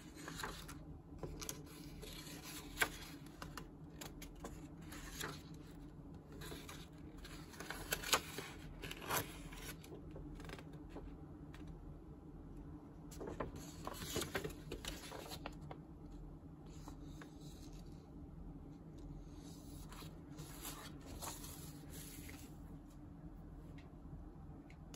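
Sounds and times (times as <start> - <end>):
paper rustling and crackling: 0.0 - 11.1, 13.1 - 15.8, 19.7 - 22.6.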